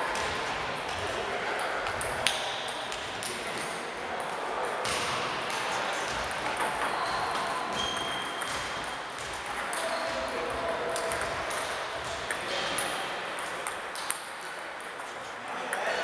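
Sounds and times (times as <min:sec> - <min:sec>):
sports hall hubbub: 0:00.0 - 0:16.0
table tennis balls clicking: 0:04.8 - 0:15.8.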